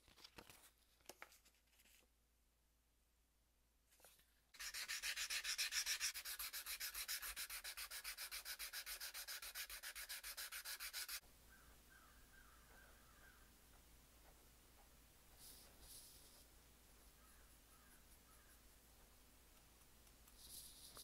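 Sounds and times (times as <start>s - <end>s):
sandpaper scratching on steel: 4.6s - 11.2s.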